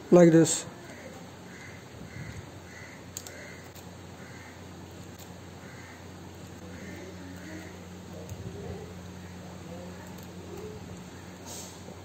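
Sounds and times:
low steady hum: 0:00.0 - 0:12.0
short bird calls: 0:00.9 - 0:04.7.

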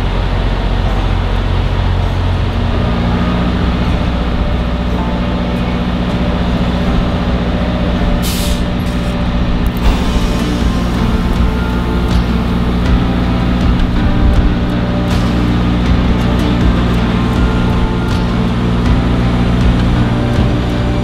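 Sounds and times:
diesel truck engine idling: 0:00.0 - 0:21.0
air hiss: 0:08.2 - 0:14.1.

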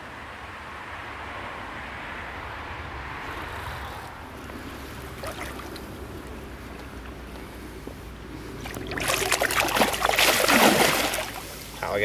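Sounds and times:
water splashing and sloshing: 0:05.0 - 0:11.9.

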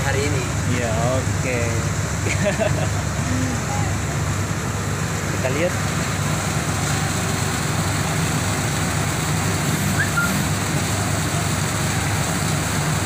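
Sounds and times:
low engine rumble: 0:00.0 - 0:13.0
high chirp: 0:10.0 - 0:10.4.

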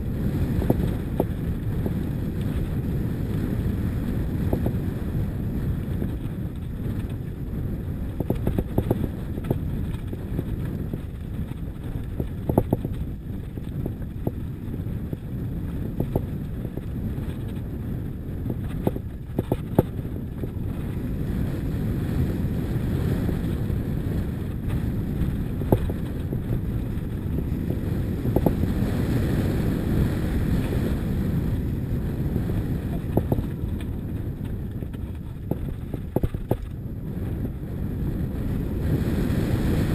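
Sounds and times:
bike knocks and rattles: 0:00.0 - 0:21.6, 0:22.9 - 0:29.2, 0:32.4 - 0:37.4
wind buffeting microphone: 0:00.0 - 0:39.9
tyres rolling on gravel: 0:05.6 - 0:21.0, 0:23.4 - 0:28.8, 0:32.1 - 0:36.9.

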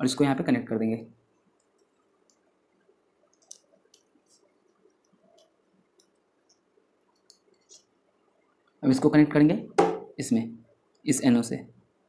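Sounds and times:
small clicks of wire handling: 0:03.3 - 0:07.8.

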